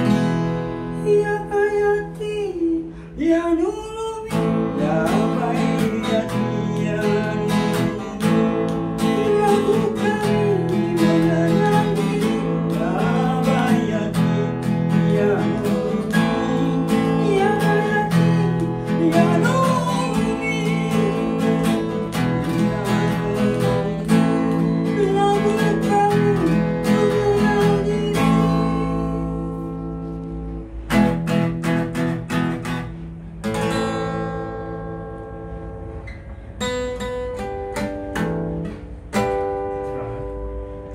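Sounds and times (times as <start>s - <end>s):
strummed acoustic guitar: 0.0s - 40.9s
person singing: 1.0s - 29.8s.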